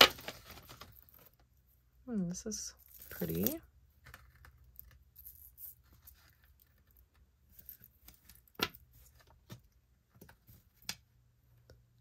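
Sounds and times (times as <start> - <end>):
metal chain clicking and rustling: 2.8 - 3.6, 4.2 - 8.6.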